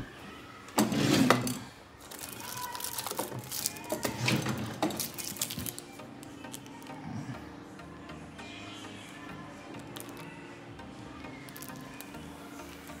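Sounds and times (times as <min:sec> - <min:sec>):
handling rustle: 0:01.2 - 0:06.7
plastic crinkling: 0:01.3 - 0:07.0, 0:09.8 - 0:10.4, 0:11.4 - 0:13.0.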